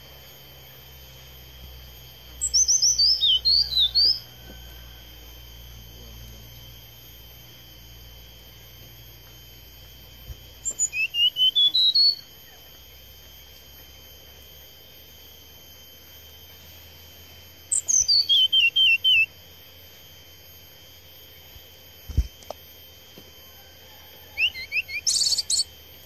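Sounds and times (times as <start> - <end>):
bird whistling song: 2.4 - 4.3, 10.6 - 12.6, 17.7 - 19.3, 24.4 - 25.7.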